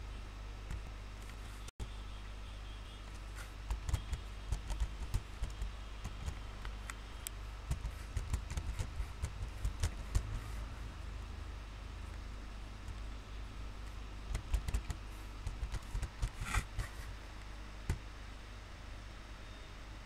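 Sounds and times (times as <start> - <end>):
steady low hum: 0.0 - 20.0
computer keyboard typing: 3.1 - 10.5, 14.3 - 17.0.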